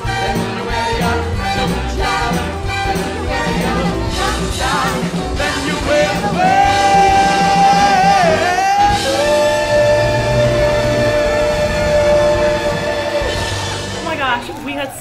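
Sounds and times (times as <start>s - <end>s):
big band music: 0.0s - 14.9s
backing singers: 0.0s - 15.0s
male vocalist belting held notes: 5.5s - 13.9s.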